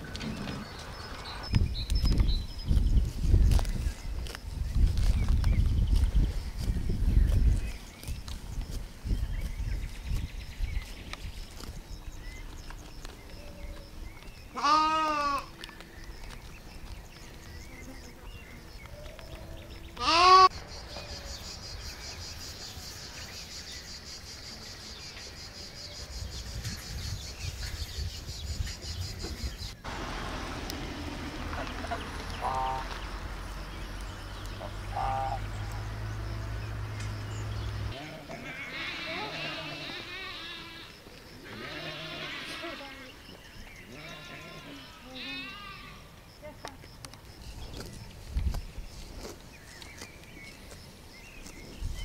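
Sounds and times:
farm animals bleating: 14.5s - 15.6s, 20.0s - 20.6s, 37.9s - 43.2s, 43.9s - 46.1s.

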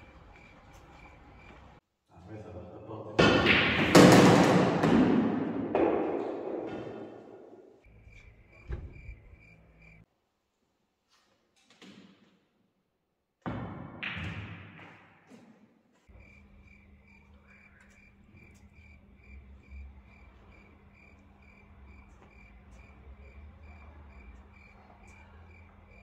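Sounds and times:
crickets chirping: 0.0s - 1.8s, 7.8s - 10.1s, 16.1s - 26.0s.

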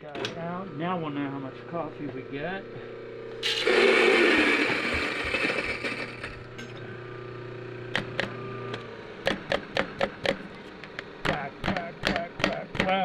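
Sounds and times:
grinder motor humming: 0.0s - 13.0s
coffee grinder crunching beans: 3.3s - 6.6s.

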